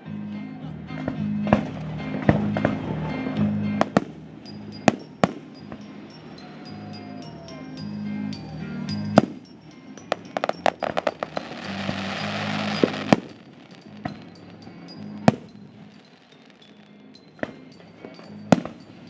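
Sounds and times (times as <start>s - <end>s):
music playing: 0.0s - 19.0s
fireworks crackling: 1.1s - 19.0s
fireworks bangs: 3.8s - 5.9s, 10.1s - 14.5s
sizzling crackle: 10.3s - 18.4s.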